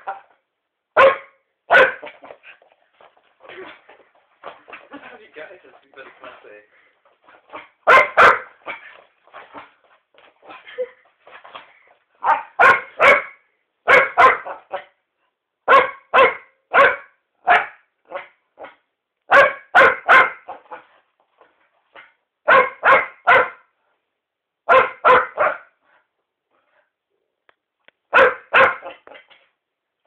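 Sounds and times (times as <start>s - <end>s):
dog yipping: 1.0s - 2.1s, 7.5s - 8.9s, 12.2s - 14.8s, 21.9s - 23.6s, 24.7s - 25.6s, 28.1s - 29.2s
dog barking: 1.0s - 2.2s, 7.5s - 8.9s, 12.2s - 15.0s, 15.6s - 20.8s, 22.0s - 23.7s, 24.7s - 25.8s, 28.1s - 29.2s.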